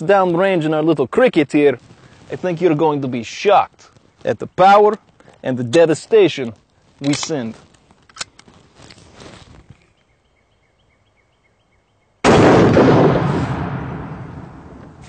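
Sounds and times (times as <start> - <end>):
handling clicks: 7.0 - 9.0
loud gunshot blast on steel: 12.2 - 14.7.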